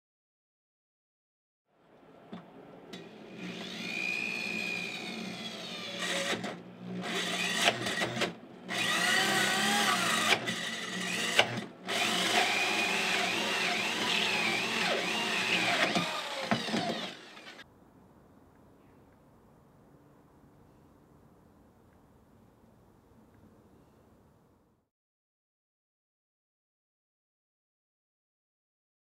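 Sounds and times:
drill cutting through wood: 0:03.3 - 0:17.6.

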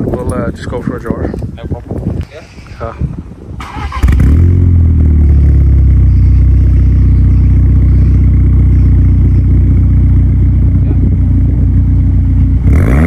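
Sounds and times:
car engine starting and idling: 0:03.6 - 0:13.0.

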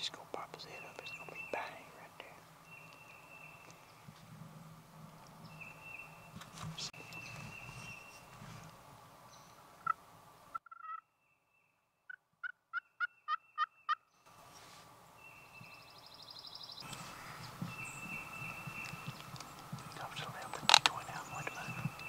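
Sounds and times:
turkey call yelps: 0:10.6 - 0:11.0, 0:12.1 - 0:14.0.

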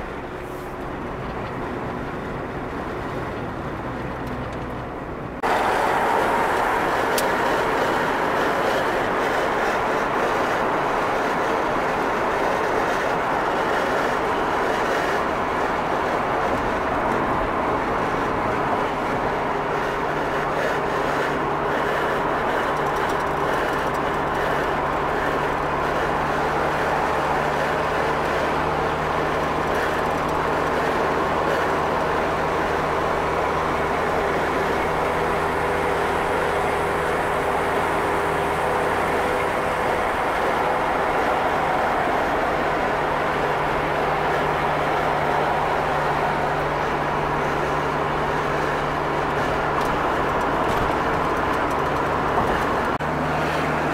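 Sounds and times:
vehicle engine and road rumble: 0:00.0 - 0:53.9.

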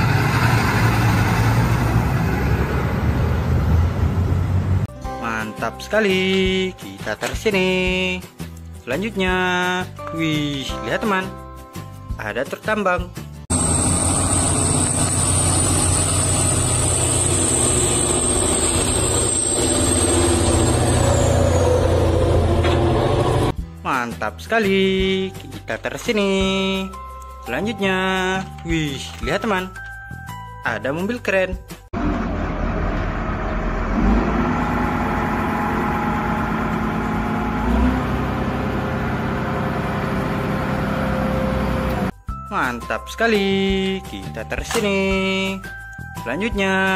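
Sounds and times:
heavy truck engine drone: 0:00.0 - 0:04.9, 0:13.5 - 0:23.6, 0:32.0 - 0:42.2
high whine: 0:13.5 - 0:23.5.

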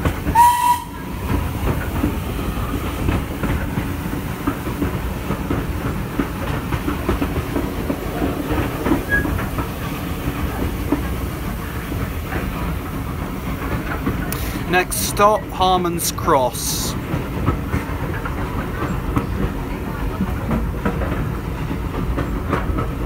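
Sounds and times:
train wheels rumbling on rails: 0:00.0 - 0:23.0
high-pitched train whistle toot: 0:00.3 - 0:01.1.

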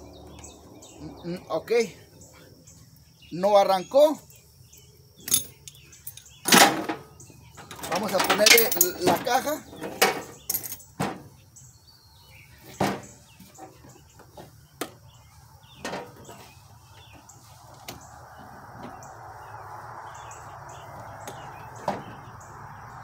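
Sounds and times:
birds chirping: 0:00.0 - 0:23.0
handling knocks and clicks: 0:05.2 - 0:11.2
steady rushing noise: 0:17.3 - 0:23.0.

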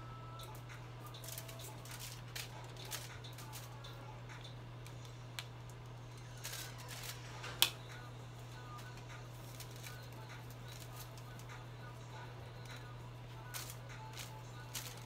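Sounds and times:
steady low hum: 0:00.0 - 0:15.0
foil rustling and crinkling: 0:01.2 - 0:03.7, 0:09.3 - 0:11.5, 0:13.5 - 0:15.0.

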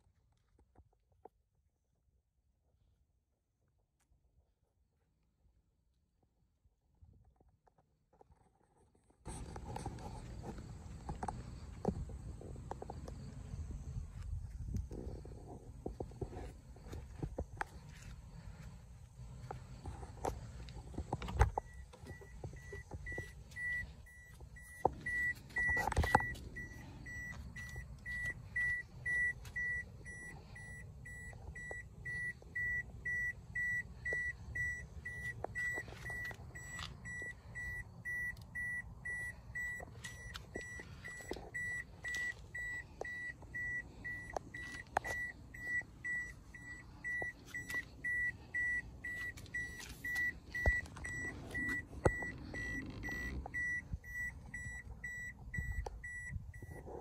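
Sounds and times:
car warning chime beeping: 0:19.3 - 0:57.0.

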